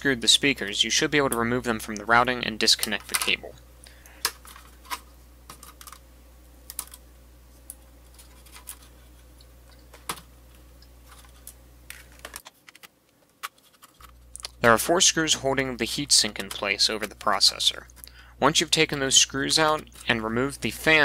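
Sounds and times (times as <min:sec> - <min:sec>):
faint low hum: 0:00.0 - 0:21.0.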